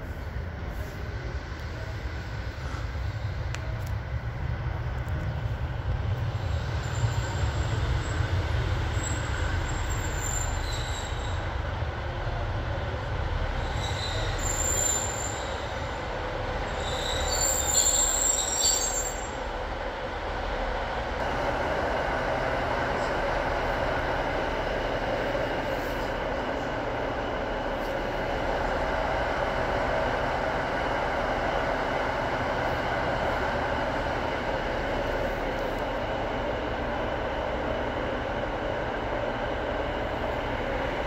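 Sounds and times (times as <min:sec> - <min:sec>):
train brakes squealing: 0:06.3 - 0:11.7, 0:13.4 - 0:19.5
diesel engines idling: 0:19.5 - 0:41.0.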